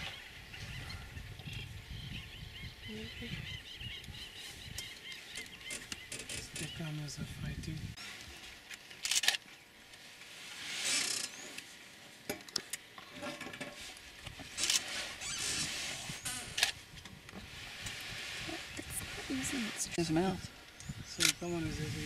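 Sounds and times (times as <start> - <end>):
rustling and scraping: 8.0 - 20.3.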